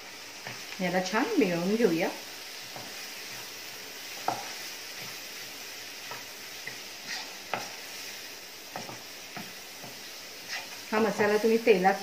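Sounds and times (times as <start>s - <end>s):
vegetables sizzling in butter: 0.0s - 12.0s
wooden spatula scraping pan: 6.0s - 11.6s.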